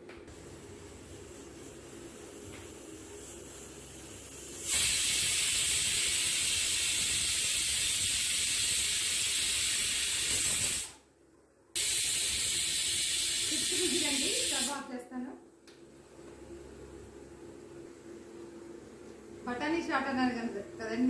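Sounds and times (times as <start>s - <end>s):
pressure cooker steam hissing: 0.3s - 11.0s, 11.8s - 14.9s.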